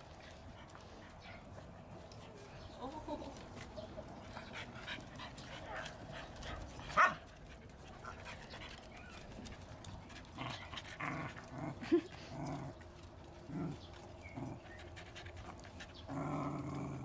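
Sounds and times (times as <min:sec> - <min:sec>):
dog panting: 0:04.0 - 0:16.3
dogs growling and grunting: 0:08.0 - 0:17.0.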